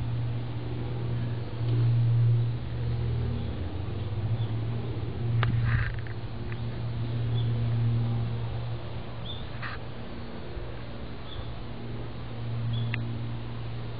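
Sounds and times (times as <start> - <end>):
steady low hum: 0.0 - 13.9
brief rustle: 5.4 - 6.2.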